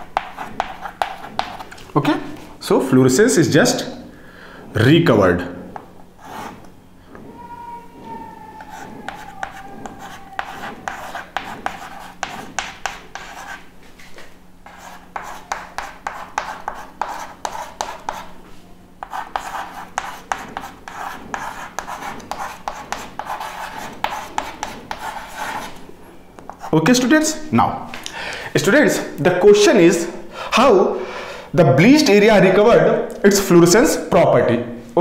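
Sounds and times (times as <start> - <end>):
chalk scratching on chalkboard: 0.0 - 1.8, 6.2 - 6.7, 8.6 - 13.7, 14.6 - 18.4, 19.0 - 25.8.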